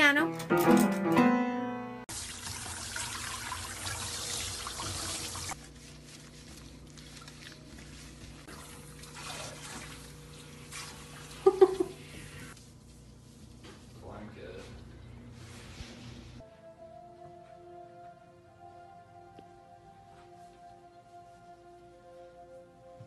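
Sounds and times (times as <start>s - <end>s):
water splashing: 2.1s - 12.1s
water spraying in sink: 2.1s - 13.4s.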